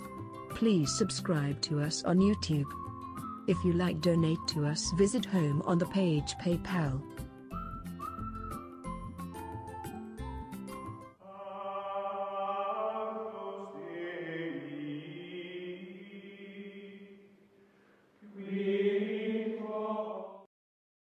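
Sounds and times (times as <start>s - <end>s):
choir-like chanting voices: 11.2s - 17.3s, 18.2s - 20.5s.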